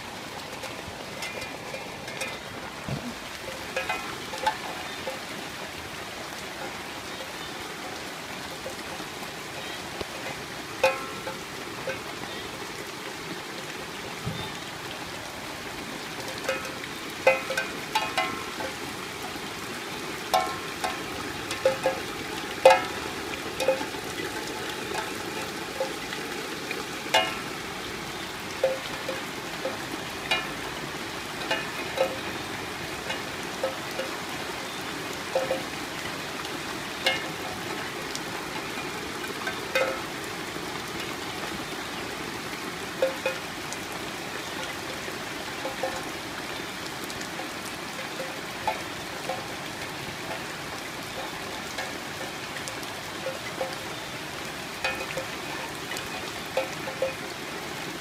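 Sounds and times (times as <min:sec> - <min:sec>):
stream water rushing: 0:00.0 - 0:58.0.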